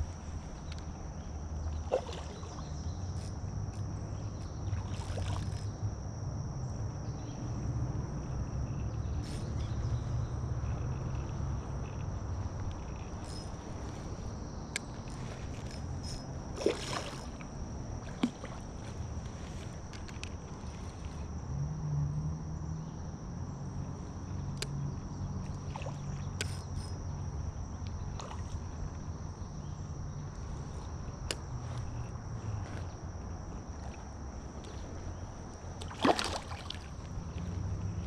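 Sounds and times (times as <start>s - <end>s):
fishing reel whirring: 2.5s - 5.8s, 10.6s - 17.6s, 24.5s - 27.2s
light clicks: 24.5s - 24.8s.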